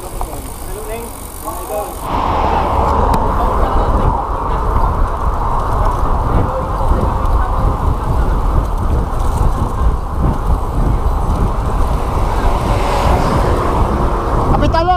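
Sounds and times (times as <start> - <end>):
wind buffeting microphone: 0.0 - 14.9.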